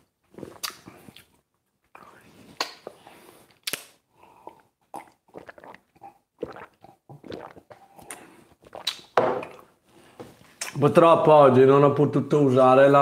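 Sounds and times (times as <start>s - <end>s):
man gulping a drink: 4.4s - 9.7s.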